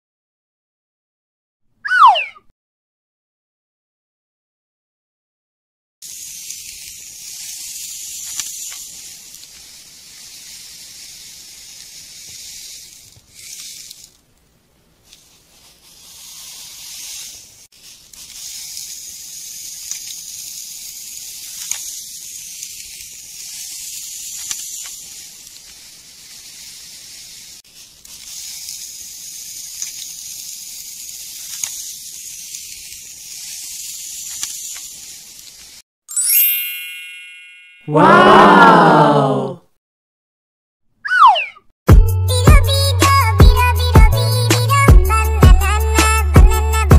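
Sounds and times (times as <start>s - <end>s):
toy shovel scraping sand: 6.0s - 14.3s, 15.0s - 35.8s.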